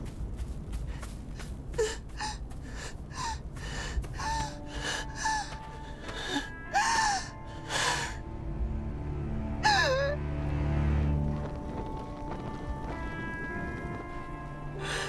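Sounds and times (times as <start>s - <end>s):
faint music: 0.0s - 15.0s
woman panting and gasping: 0.9s - 8.2s.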